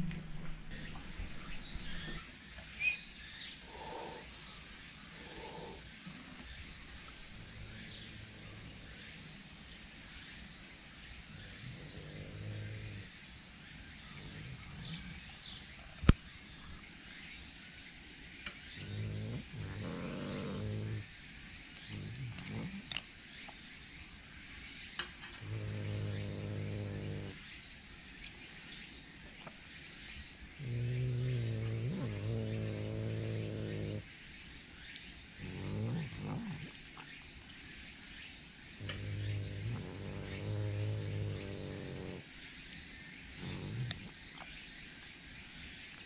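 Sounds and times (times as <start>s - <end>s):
cat growling: 3.7s - 4.3s, 5.2s - 6.3s, 11.4s - 13.1s, 14.1s - 15.4s, 18.8s - 21.0s, 21.8s - 23.0s, 25.4s - 27.4s, 30.6s - 34.0s, 35.4s - 36.8s, 38.8s - 42.2s, 43.4s - 44.2s.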